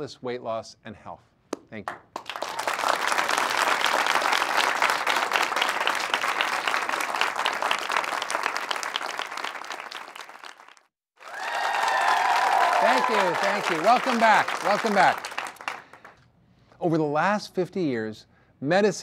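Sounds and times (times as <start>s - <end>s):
audience applauding: 2.2s - 16.2s.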